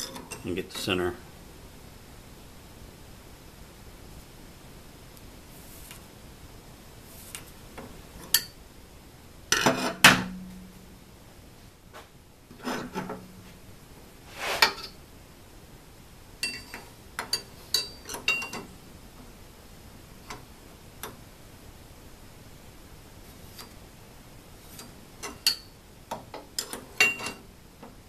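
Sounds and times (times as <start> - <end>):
metal tools knocking and clinking: 16.4 - 18.6, 26.6 - 27.4.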